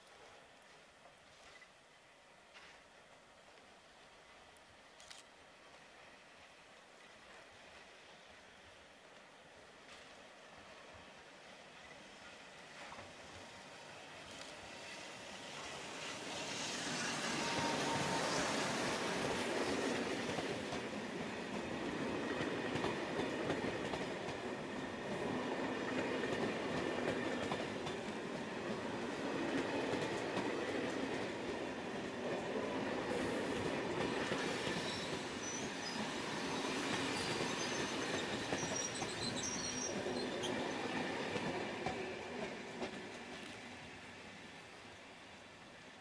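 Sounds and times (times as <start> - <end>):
train wheels rumbling on rail: 11.8 - 44.5
high wheel squeals: 34.8 - 40.7.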